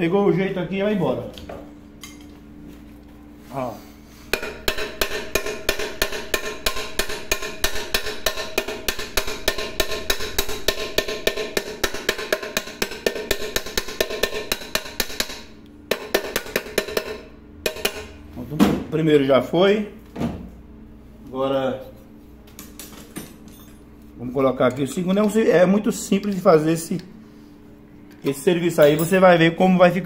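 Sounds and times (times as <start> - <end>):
metallic ring: 23.2 - 23.8, 28.7 - 29.3.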